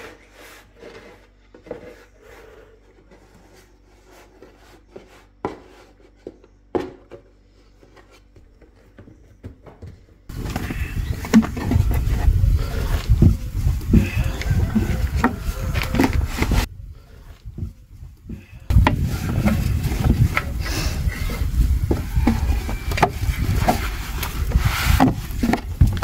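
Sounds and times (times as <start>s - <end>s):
rolling pin rolling dough: 0.0s - 7.0s.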